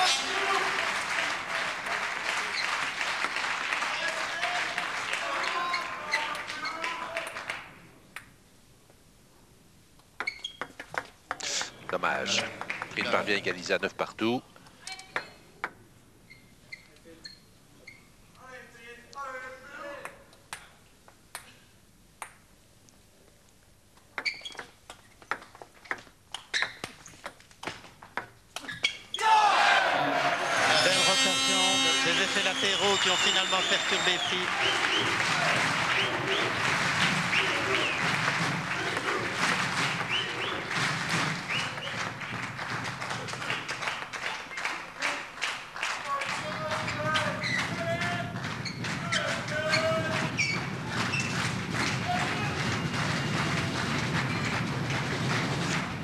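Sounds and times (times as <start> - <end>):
crowd applauding: 0.0 - 7.7, 11.4 - 13.7, 29.8 - 56.0.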